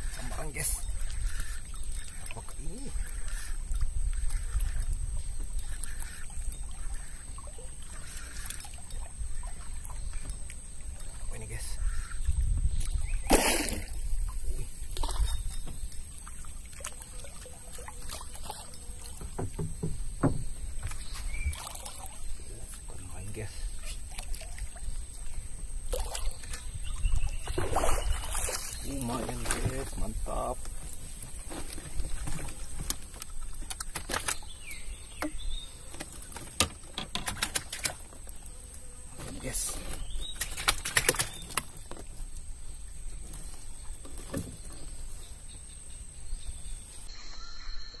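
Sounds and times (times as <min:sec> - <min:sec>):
water lapping against boat hull: 0:00.0 - 0:45.6
fishing tackle clicks and knocks: 0:31.7 - 0:34.4, 0:35.9 - 0:38.1.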